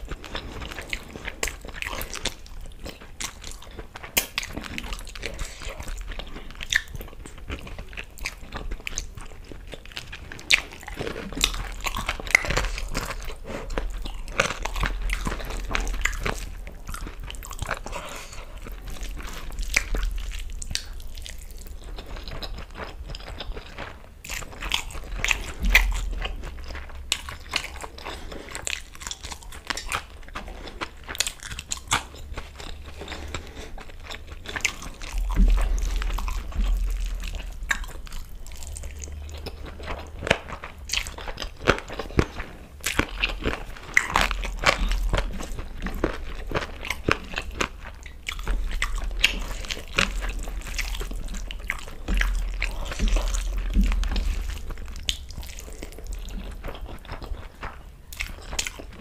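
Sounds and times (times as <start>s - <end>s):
person chewing food: 0.0s - 59.0s
wet mouth clicks and smacks: 4.1s - 4.6s
crunchy bites: 10.0s - 59.0s.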